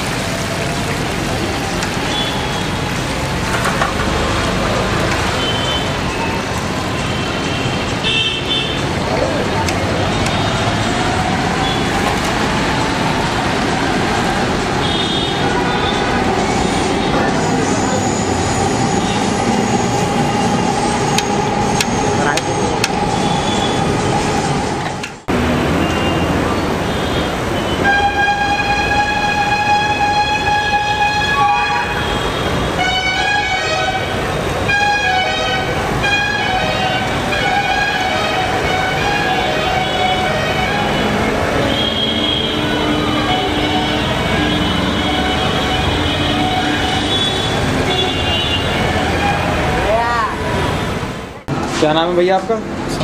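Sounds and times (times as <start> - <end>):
hot oil sizzling: 0.0 - 7.6
street traffic: 0.0 - 53.0.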